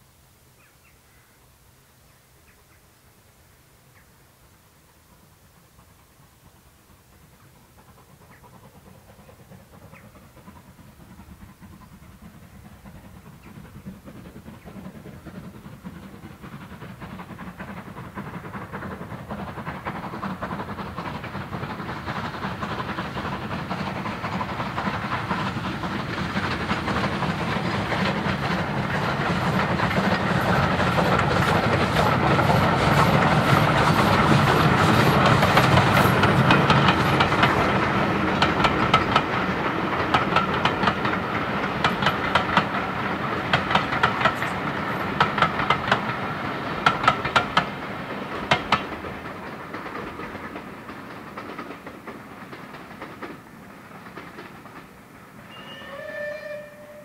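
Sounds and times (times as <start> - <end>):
steam locomotive passing: 0.0 - 57.0
carriage wheels clattering on rails: 13.8 - 54.9.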